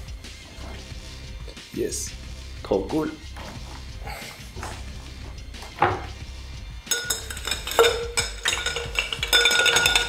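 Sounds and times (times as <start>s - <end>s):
background music: 0.0s - 10.0s
knock: 5.7s - 6.2s
metal tools clinking on tin: 6.9s - 10.0s.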